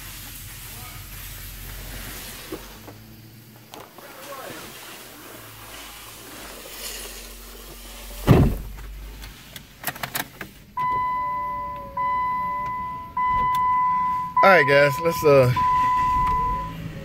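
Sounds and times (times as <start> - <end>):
car door shutting: 8.1 - 14.5, 15.2 - 17.0
car warning chime: 10.8 - 17.0.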